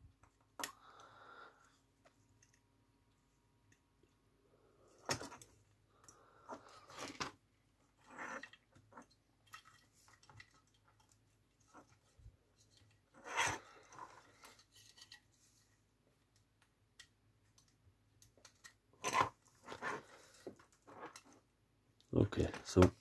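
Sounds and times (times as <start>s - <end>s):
plastic parts clicking and scraping: 4.9s - 21.5s
plastic parts clattering: 6.5s - 15.4s.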